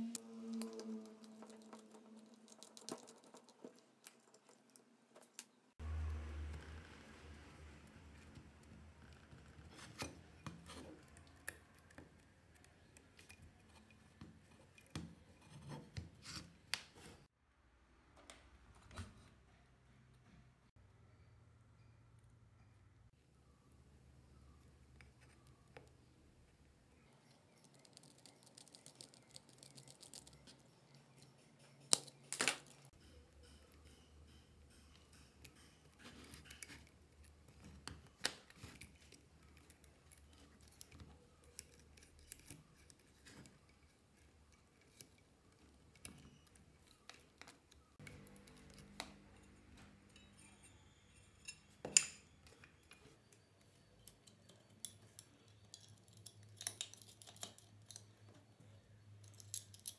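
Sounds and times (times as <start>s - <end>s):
small metal parts clicking: 0.1s - 5.6s, 27.4s - 58.2s, 59.1s - 59.9s.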